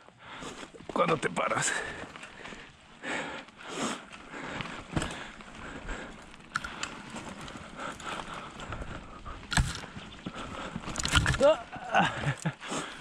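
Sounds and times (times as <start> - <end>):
tyres crunching over gravel: 0.2 - 13.0
bike clunks and knocks: 9.4 - 10.0.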